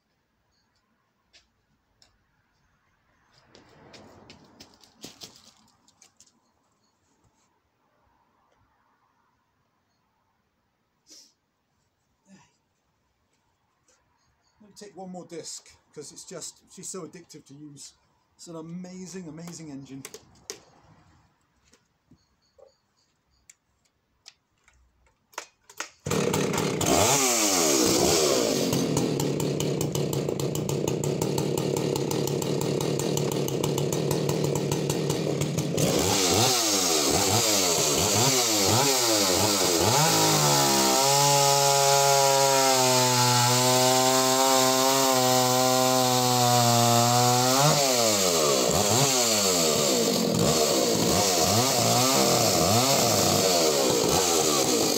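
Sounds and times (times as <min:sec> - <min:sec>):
chainsaw cutting log: 0:19.1 - 0:20.7, 0:25.3 - 0:54.9.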